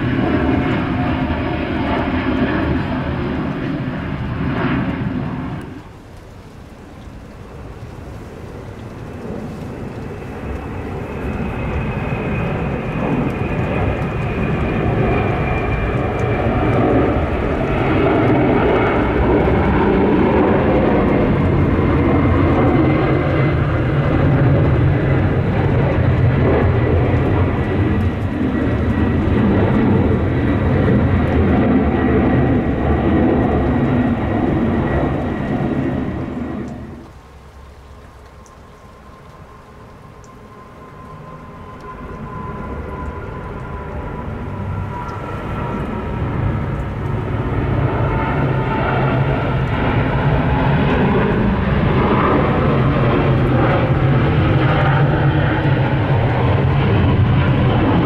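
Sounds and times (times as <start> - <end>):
high jet engine whine: 0.0 - 58.0
jet airliner engine rumble: 0.0 - 58.0.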